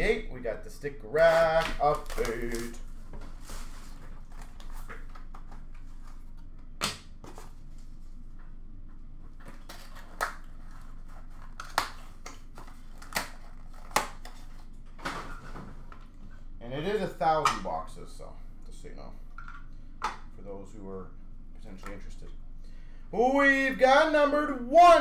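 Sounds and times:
packaging clicks and crinkles: 0:01.6 - 0:02.9.

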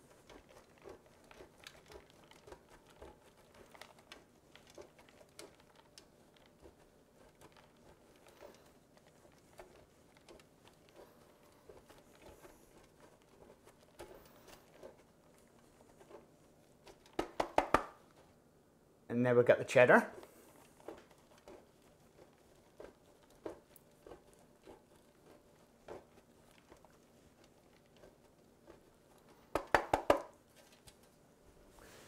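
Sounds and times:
cheese grating on metal grater: 0:00.0 - 0:17.6, 0:20.0 - 0:29.7.

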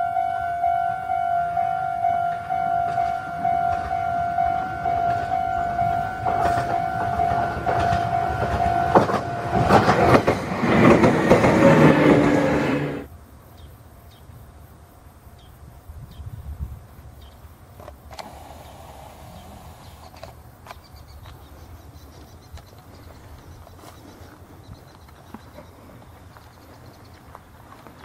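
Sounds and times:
pulsing electronic warning tone: 0:00.0 - 0:10.1
train motor whine: 0:00.0 - 0:13.1, 0:18.1 - 0:20.3
electric train passing: 0:00.0 - 0:13.4, 0:18.1 - 0:20.5.

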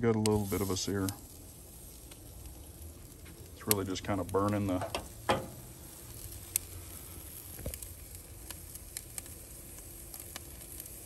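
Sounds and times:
sharp crackles and pops: 0:00.0 - 0:11.0
steak sizzling on a grill: 0:00.0 - 0:11.0.

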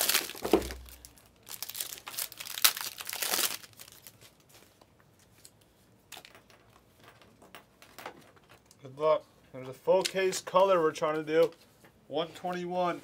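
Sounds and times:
wrapper crinkling and tearing: 0:00.0 - 0:04.8.

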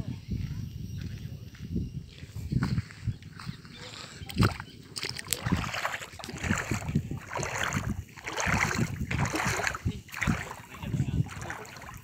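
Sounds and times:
water splashing around wading legs: 0:04.3 - 0:12.0.

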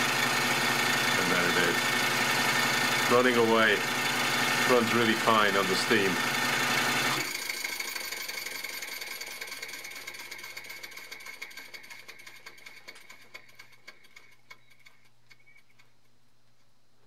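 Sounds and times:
model steam engine ticking: 0:07.3 - 0:16.0.

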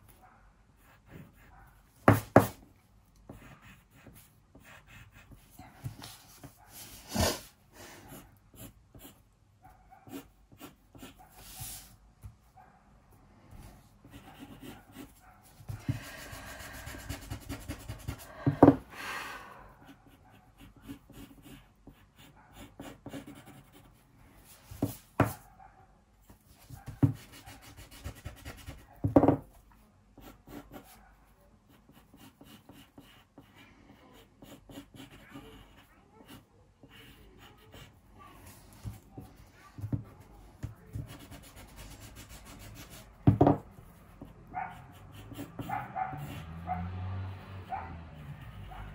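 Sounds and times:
pencil sketching on paper: 0:00.8 - 0:02.6, 0:03.3 - 0:09.2, 0:10.0 - 0:12.0, 0:13.5 - 0:18.9, 0:19.7 - 0:25.4, 0:26.6 - 0:29.2, 0:30.2 - 0:31.0, 0:31.7 - 0:48.9
knocks on desk: 0:18.5 - 0:18.8, 0:29.0 - 0:29.4, 0:43.2 - 0:43.6.

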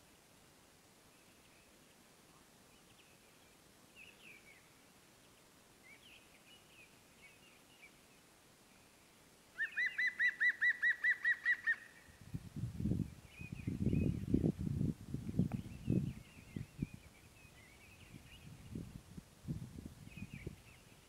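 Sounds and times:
birds chirping: 0:15.4 - 0:18.9.

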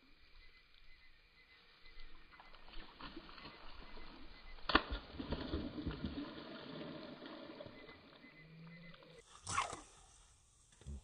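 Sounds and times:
fish splashing and thrashing in water: 0:02.4 - 0:08.3.

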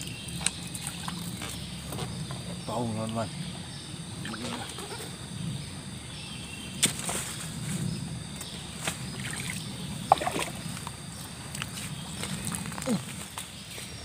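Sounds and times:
river water sloshing around legs: 0:09.1 - 0:10.9.

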